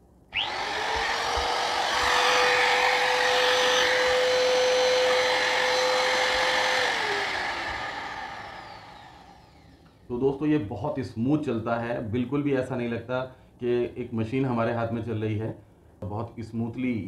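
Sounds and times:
router motor whining: 0:00.4 - 0:10.1.

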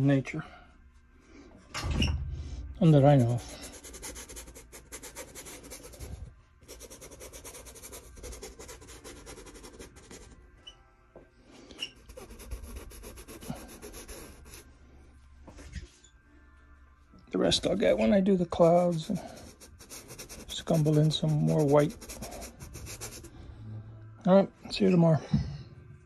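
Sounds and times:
paintbrush scrubbing on canvas: 0:03.1 - 0:10.4, 0:12.1 - 0:14.7, 0:18.5 - 0:23.3.

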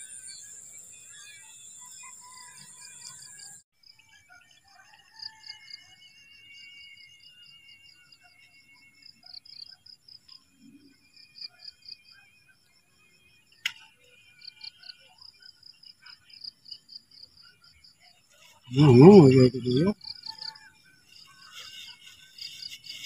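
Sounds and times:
insects chirping: 0:05.1 - 0:23.0
thin wavering whine: 0:05.5 - 0:09.3.

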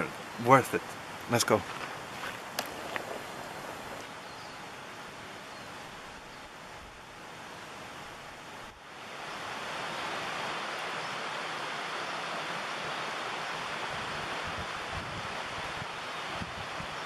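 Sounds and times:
wind on microphone: 0:13.8 - 0:17.0.

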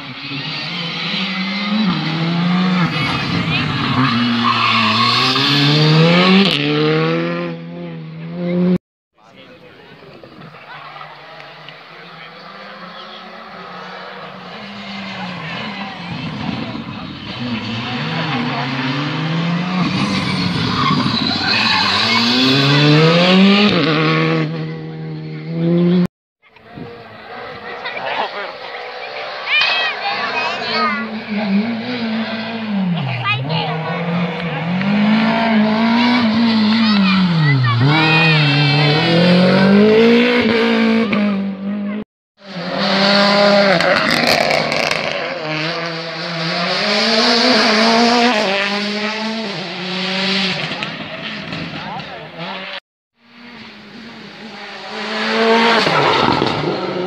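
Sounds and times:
rally car engine revving: 0:00.0 - 0:08.8, 0:10.1 - 0:57.0.

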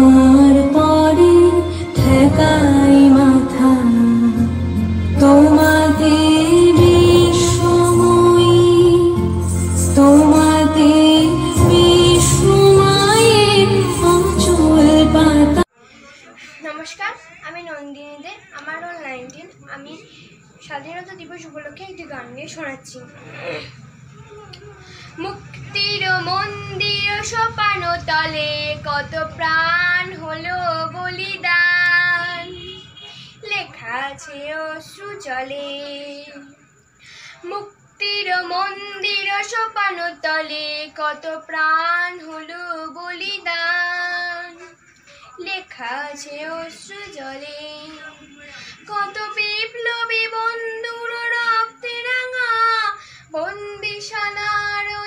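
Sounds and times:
girl singing: 0:00.0 - 0:15.7, 0:25.2 - 0:32.6, 0:33.4 - 0:36.5, 0:37.4 - 0:44.8, 0:45.4 - 0:48.1, 0:48.8 - 0:55.0.

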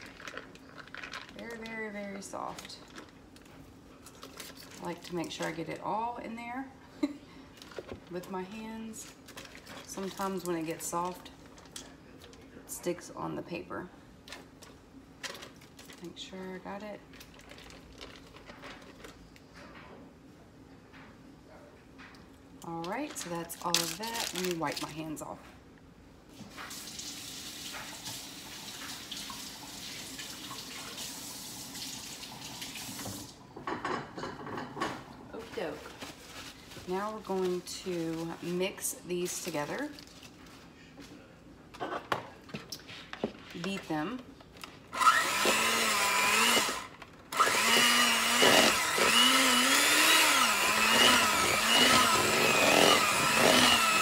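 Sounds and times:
electric hand mixer beating: 0:45.0 - 0:54.0.

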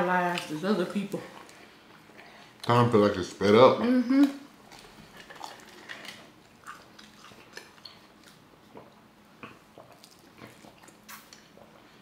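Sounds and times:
chewing: 0:04.6 - 0:12.0.

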